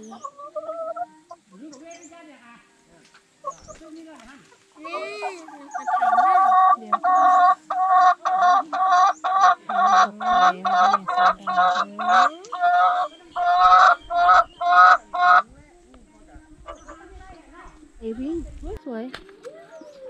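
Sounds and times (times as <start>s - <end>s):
hen cackling: 0.0s - 1.6s, 4.7s - 15.5s.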